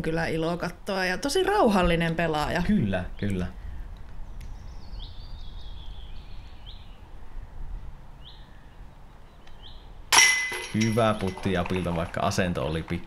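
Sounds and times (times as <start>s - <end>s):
small bird chirping: 2.9s - 7.6s.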